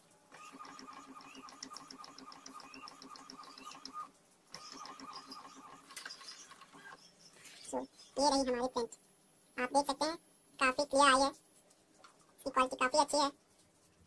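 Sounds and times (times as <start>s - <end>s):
printer carriage whining and ticking: 0.4s - 7.0s.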